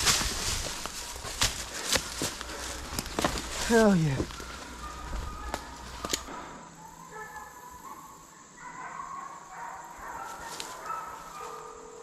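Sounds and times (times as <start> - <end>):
hounds baying: 0.9 - 12.0.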